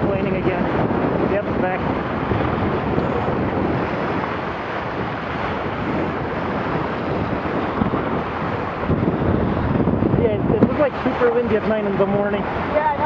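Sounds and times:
water rushing along hull: 0.0 - 13.0
wind buffeting microphone: 0.0 - 13.0.

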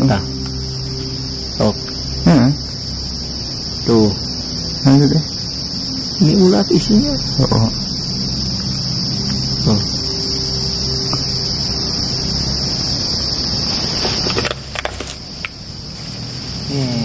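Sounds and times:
low rumble: 0.0 - 14.2
insects chorus: 0.0 - 17.0.

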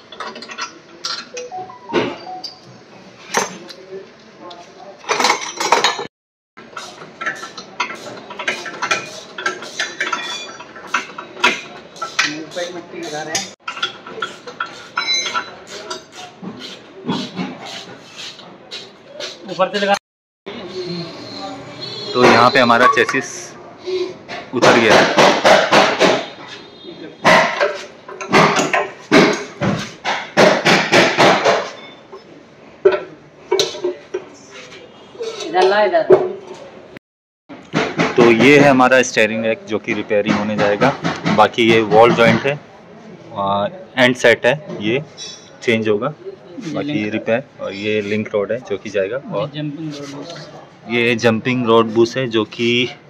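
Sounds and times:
wrenches clinking against metal: 0.0 - 1.6, 5.1 - 6.1, 7.2 - 16.1
sharp knock: 24.6 - 26.3, 28.3 - 31.7.

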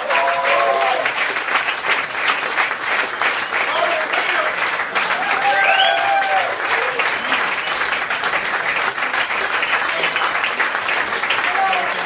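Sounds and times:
audience applauding and cheering: 0.0 - 12.0
person whooping: 5.1 - 7.2.

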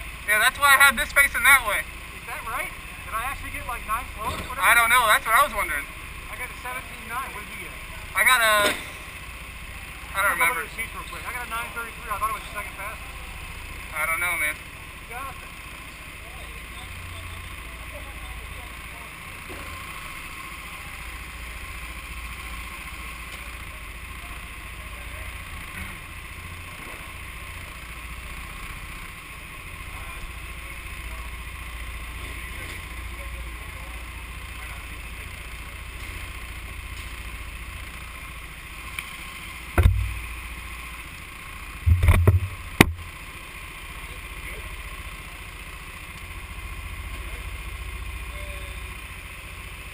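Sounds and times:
low hum and rumble of kart hall: 0.0 - 49.9
loud knocks: 39.8 - 40.2, 41.9 - 43.0.

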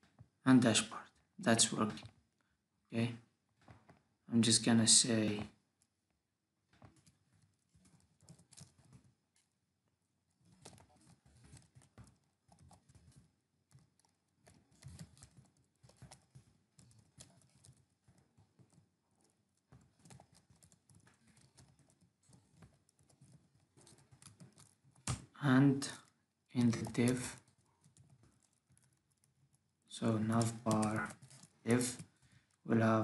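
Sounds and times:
computer keyboard typing: 7.0 - 9.1, 10.4 - 25.3, 25.9 - 32.2.

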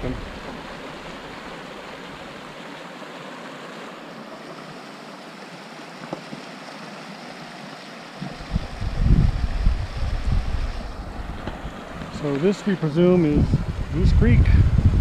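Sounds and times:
creek running over rocks: 0.0 - 14.9
wind buffeting microphone: 8.3 - 15.0.

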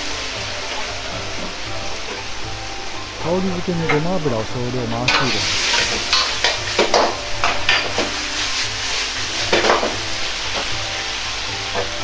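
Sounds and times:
food sizzling in wok: 0.0 - 12.0
metal ladle scraping wok: 5.0 - 12.0.

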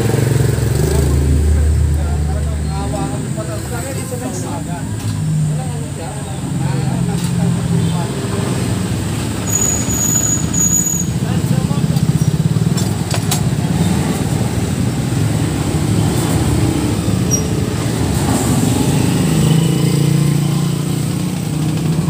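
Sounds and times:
vehicle engine running: 0.0 - 7.4.

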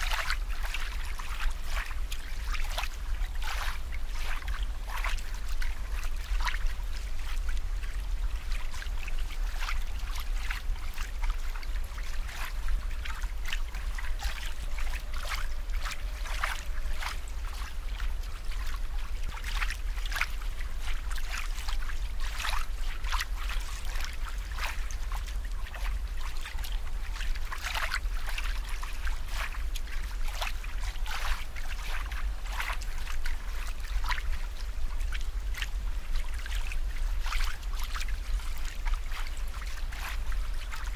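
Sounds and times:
steady low rumble: 0.0 - 40.9
water plops and drips: 0.0 - 40.9
water trickling and bubbling: 0.0 - 40.9.

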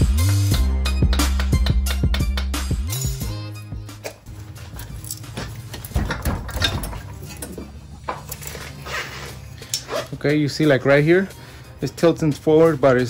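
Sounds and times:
metal clicks and knocks: 4.8 - 8.5.

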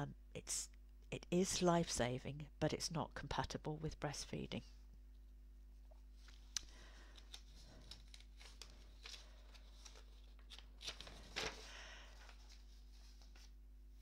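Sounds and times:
paper rustling: 6.2 - 13.6.

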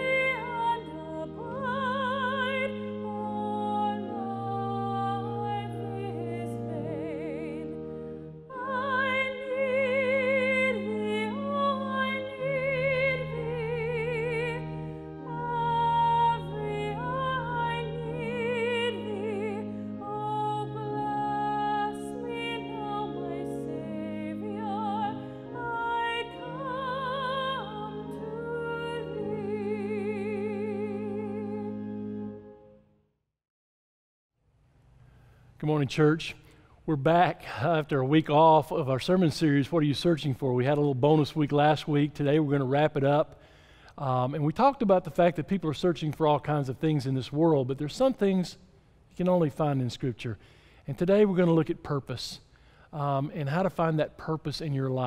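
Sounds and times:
woman singing classical style: 0.0 - 32.3
held accompaniment chords: 0.0 - 33.0.

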